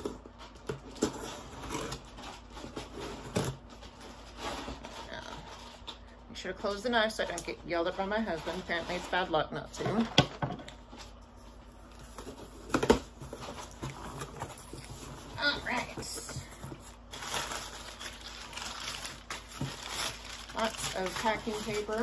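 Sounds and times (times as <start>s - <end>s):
packing paper crinkling: 10.8s - 22.0s.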